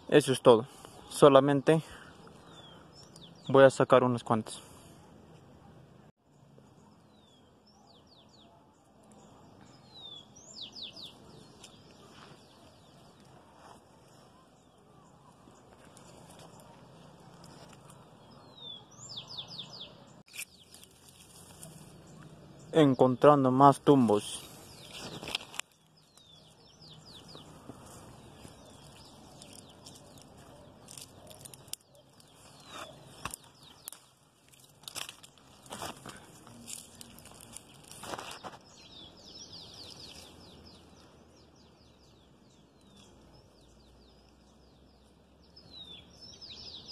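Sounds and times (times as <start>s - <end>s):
faint outdoor background noise: 0.0s - 46.9s
small bird chirping: 6.4s - 22.8s, 24.1s - 46.9s
leaves and twigs rustling: 9.0s - 18.4s, 20.3s - 22.6s, 23.8s - 46.8s
branch snapping: 20.3s - 22.3s, 24.8s - 26.5s, 27.6s - 38.7s.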